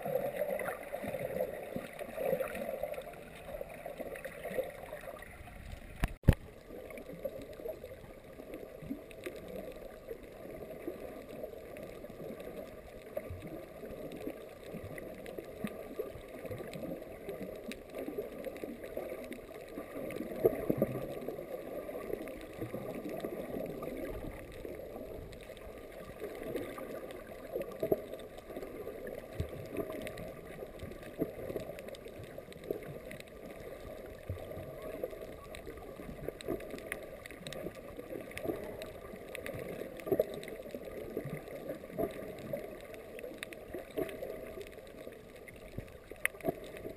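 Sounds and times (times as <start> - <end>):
water swishing and gurgling underwater: 0.0 - 46.9
small clicks: 5.6 - 46.9.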